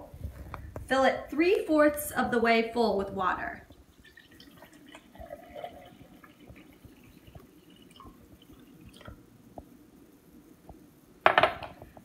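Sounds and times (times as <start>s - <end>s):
water trickling into a glass: 3.9s - 9.2s.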